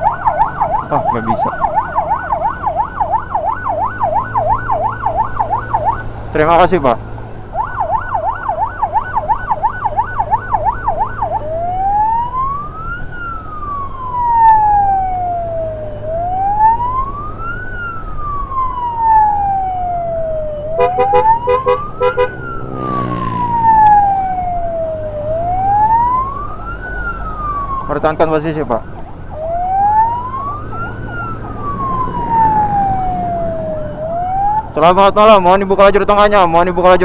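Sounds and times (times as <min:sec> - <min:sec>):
ambulance siren: 0:00.0 - 0:37.0
low engine hum: 0:28.8 - 0:34.8.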